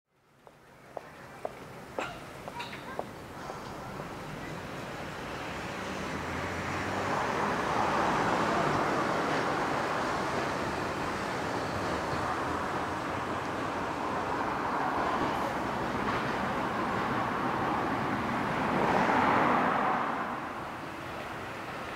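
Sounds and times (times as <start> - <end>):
tyres hissing on road: 0.6 - 21.9
car driving past: 18.2 - 20.6.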